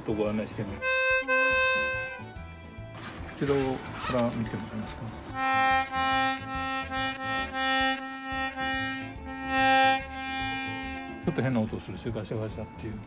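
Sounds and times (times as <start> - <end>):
buzzing accordion reed blasts: 0.8 - 2.3, 5.4 - 11.6.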